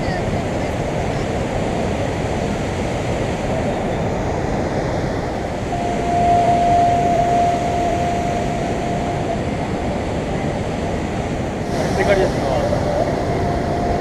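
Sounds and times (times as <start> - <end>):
steady high tone: 5.6 - 10.4, 11.7 - 14.0.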